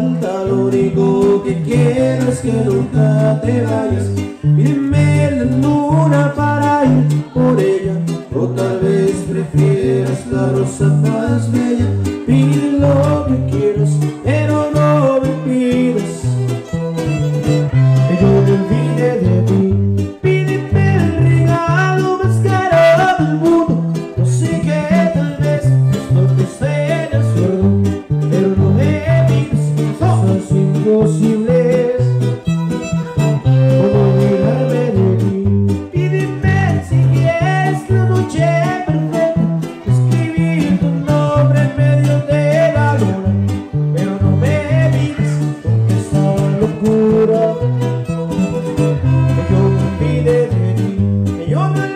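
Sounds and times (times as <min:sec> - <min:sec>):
strummed guitar chords: 0:00.0 - 0:51.9
violin melody: 0:15.3 - 0:19.8, 0:25.5 - 0:28.8, 0:31.7 - 0:35.6, 0:39.4 - 0:51.2.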